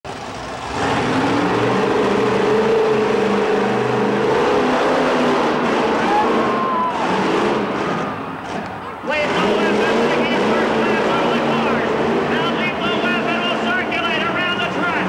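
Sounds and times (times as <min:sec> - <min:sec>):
monster truck engine revving: 0:00.1 - 0:15.0.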